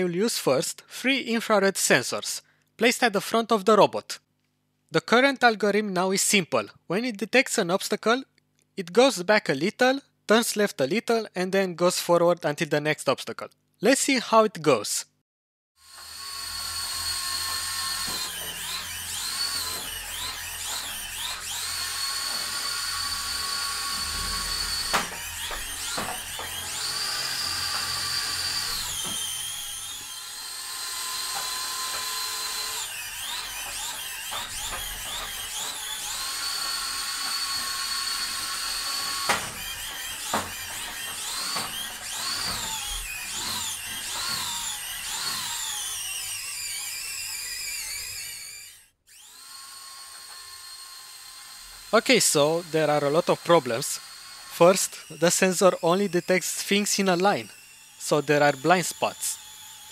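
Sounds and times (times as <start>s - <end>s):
small motors whining: 15.8s - 56.4s, 57.0s - 59.9s.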